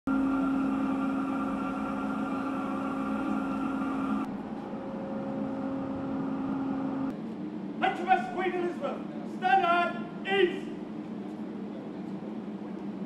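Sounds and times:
steady high machine tones: 0.1 - 7.1
machinery hum: 0.1 - 13.0.

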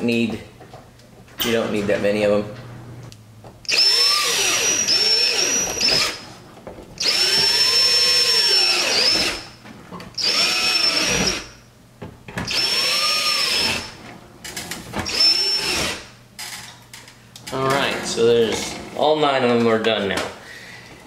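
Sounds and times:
cordless drill whining: 3.7 - 6.2, 7.0 - 9.5, 10.2 - 11.6, 12.5 - 14.0, 15.0 - 16.1.

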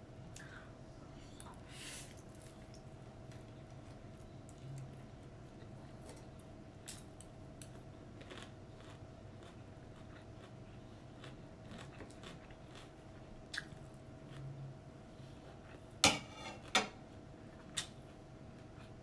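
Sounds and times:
faint hum: 0.0 - 19.0
chewing noodles: 7.7 - 14.5.

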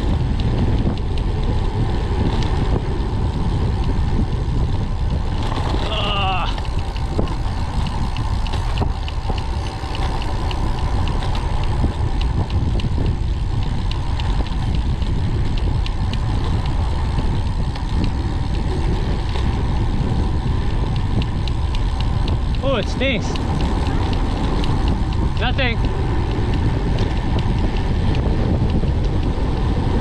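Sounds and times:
wind rushing over microphone: 0.0 - 30.0.

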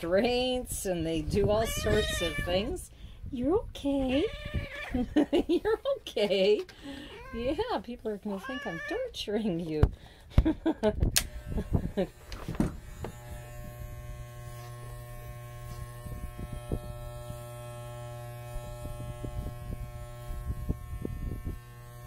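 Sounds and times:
electric hair clippers buzzing: 11.1 - 22.0.

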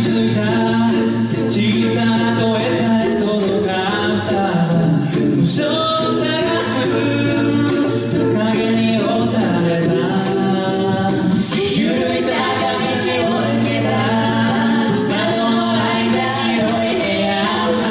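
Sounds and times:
close sung harmonies: 0.0 - 17.9
lead voice singing: 0.0 - 17.9
vocal percussion ticks: 0.0 - 17.9.

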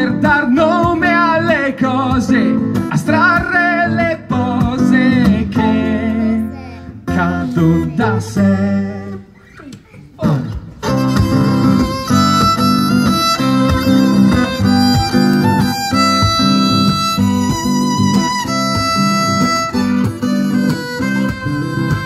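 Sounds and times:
strummed acoustic guitar: 0.0 - 22.0
violin melody: 10.8 - 22.0.

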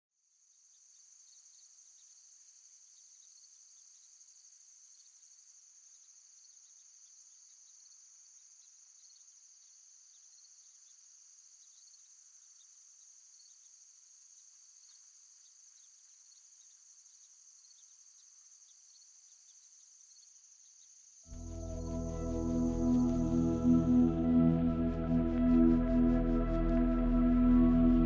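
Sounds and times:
crickets trilling: 0.8 - 24.6.

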